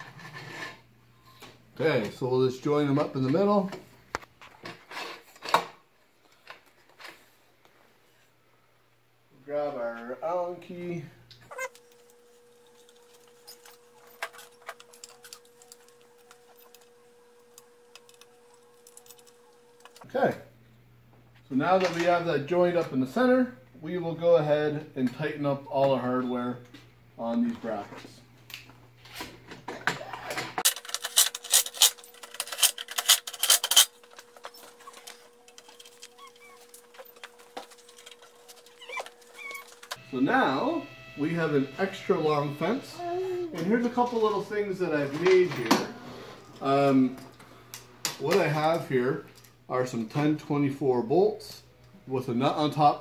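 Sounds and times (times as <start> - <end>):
faint steady hum: 5.4 - 53.0
metal hardware clicking and rubbing: 11.5 - 20.1, 30.6 - 40.0.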